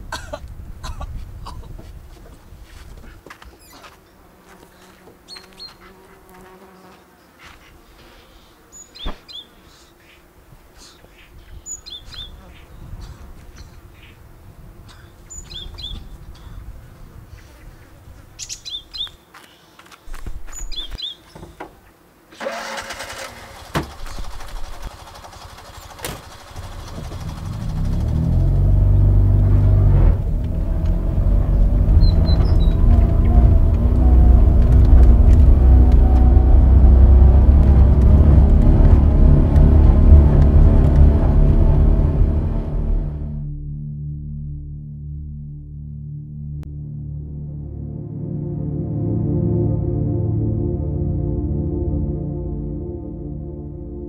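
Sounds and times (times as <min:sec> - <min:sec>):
countryside ambience: 0:00.0 - 0:43.4
small birds chirping: 0:03.1 - 0:06.2, 0:06.8 - 0:22.0, 0:31.8 - 0:33.8
car engine running: 0:22.4 - 0:43.5.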